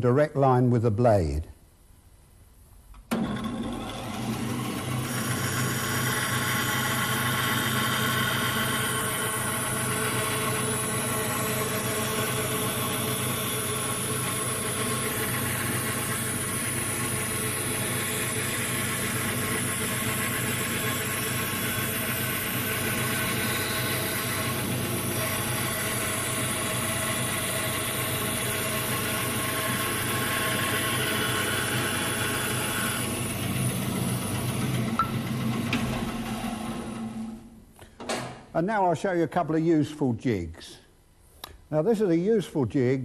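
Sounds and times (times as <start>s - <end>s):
bandsaw cutting wood: 3.2s - 34.6s.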